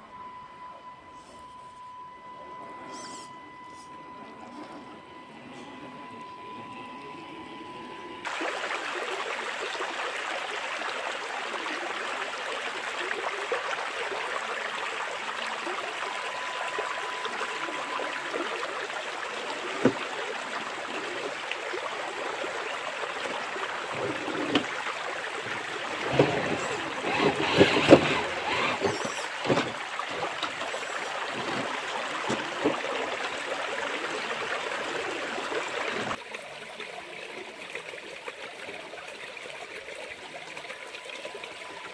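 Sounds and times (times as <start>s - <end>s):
rocky stream rushing: 19.1s - 36.2s
tyres splashing and knocking on rocks: 26.0s - 30.6s.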